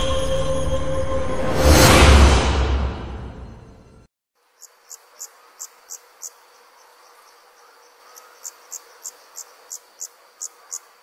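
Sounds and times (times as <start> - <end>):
crickets chirping: 4.4 - 11.0.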